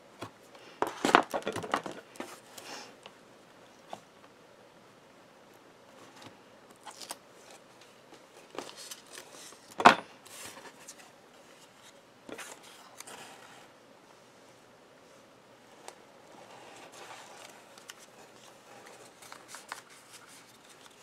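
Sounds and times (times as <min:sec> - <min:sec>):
paper rustling and sliding: 0:05.9 - 0:13.7, 0:15.6 - 0:21.0.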